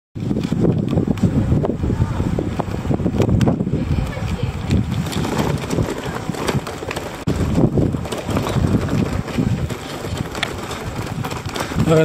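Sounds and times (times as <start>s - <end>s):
bicycle rattling over cobblestones: 0.2s - 12.0s
wind buffeting microphone: 0.2s - 12.0s.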